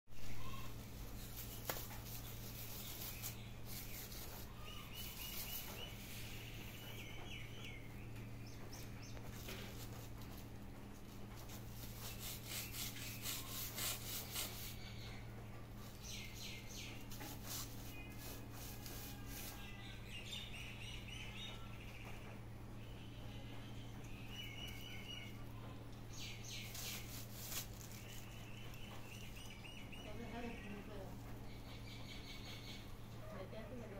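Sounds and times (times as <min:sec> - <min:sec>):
small birds chirping: 0:00.1 - 0:33.9
steady low hum: 0:00.1 - 0:33.9
plastic cat toy rustling: 0:00.5 - 0:06.2, 0:26.6 - 0:28.4.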